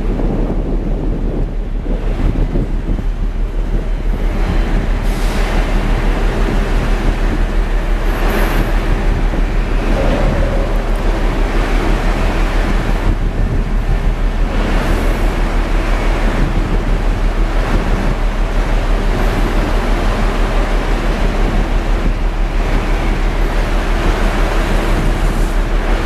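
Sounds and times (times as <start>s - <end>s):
loud wind noise: 0.0s - 26.0s
low rhythmic throb: 8.8s - 14.5s.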